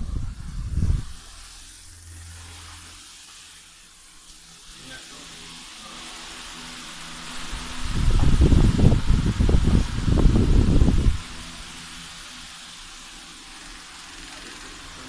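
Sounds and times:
low hum: 0.0s - 3.0s
room hiss: 0.0s - 15.0s.

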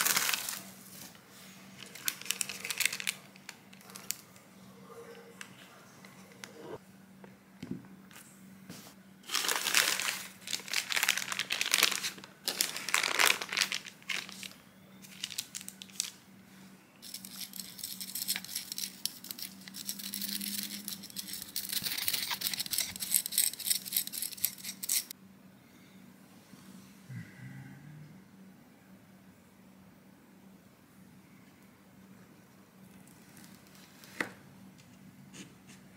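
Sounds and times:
baking paper crinkling: 0.0s - 1.2s, 1.8s - 4.4s, 9.2s - 16.2s, 17.0s - 25.1s.

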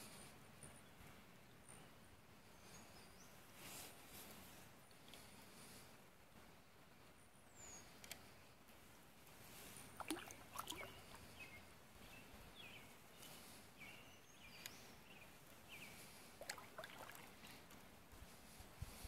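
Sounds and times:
small birds chirping: 0.0s - 5.9s, 7.0s - 8.6s, 9.3s - 19.0s
canoe paddle splashing: 9.9s - 11.5s, 16.3s - 17.7s.

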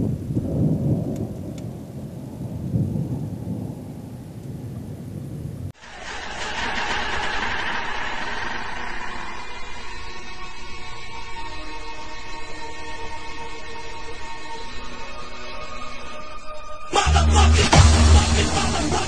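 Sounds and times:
thunder rumbling: 0.0s - 10.8s
music: 9.1s - 19.0s.

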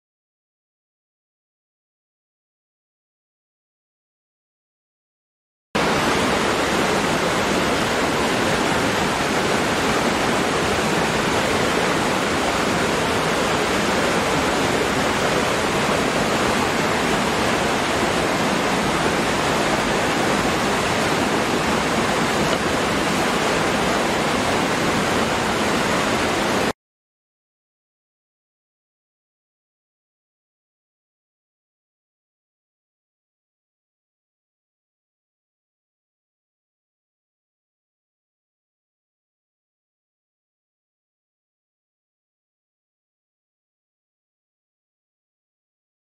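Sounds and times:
waterfall rushing: 5.8s - 26.8s.

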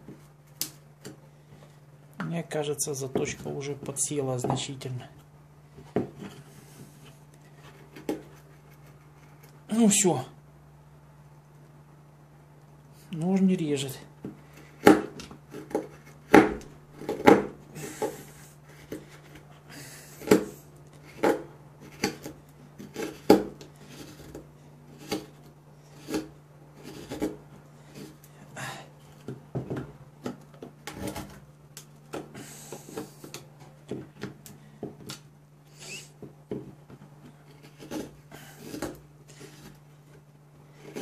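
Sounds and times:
knife scraping cuts into wood: 20.1s - 28.3s, 37.4s - 39.8s.

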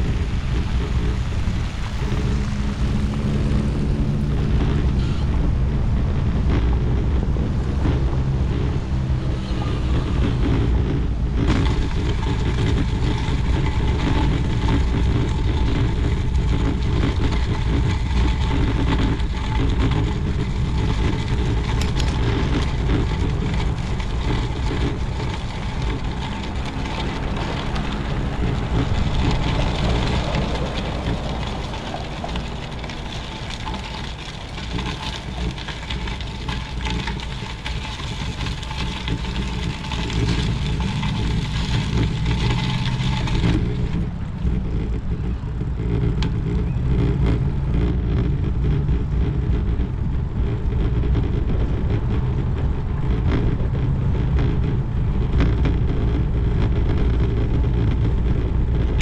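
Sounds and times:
bike tyres on gravel: 0.0s - 59.0s
bike tyres rolling on pavers: 0.0s - 59.0s
wind buffeting microphone: 0.0s - 59.0s.

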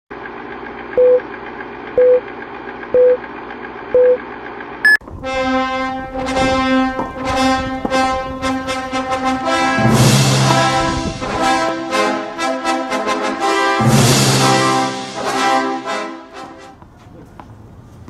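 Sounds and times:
countdown beeps: 1.0s - 1.2s, 2.0s - 2.2s, 3.0s - 3.2s, 4.0s - 4.2s
higher beep: 4.0s - 4.2s
music: 5.2s - 16.8s.

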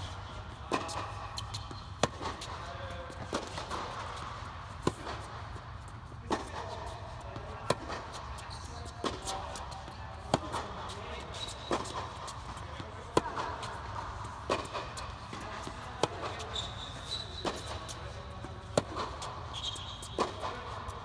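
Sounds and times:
tennis ball bouncing: 0.0s - 21.0s
racket striking tennis ball: 0.5s - 16.6s, 17.4s - 21.0s.

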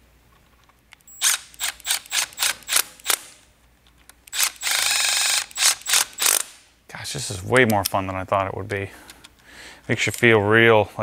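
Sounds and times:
cordless power tool whirring: 4.3s - 6.6s.

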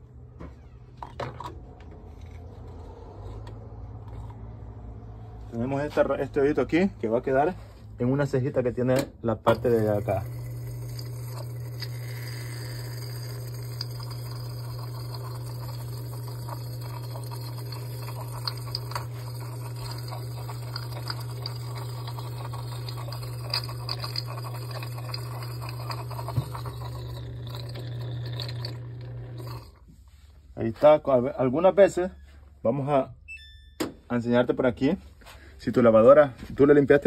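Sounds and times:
washing machine humming: 9.1s - 29.8s.

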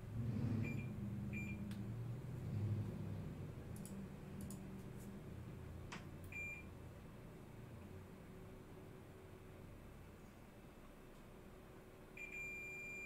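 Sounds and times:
sharp clicks: 3.7s - 4.9s
multimeter beeping: 12.2s - 13.0s.

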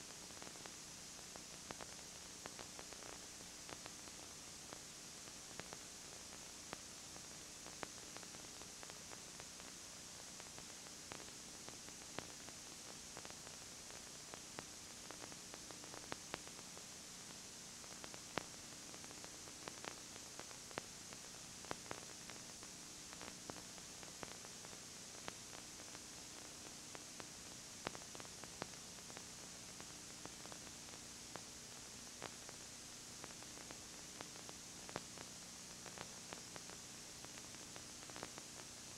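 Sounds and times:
videotape hiss: 0.0s - 38.9s
crackling clicks: 17.9s - 38.7s.

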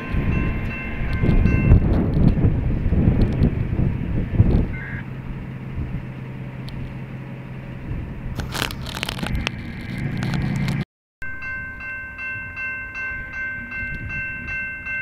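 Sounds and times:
freight train rumbling past: 0.0s - 8.6s.

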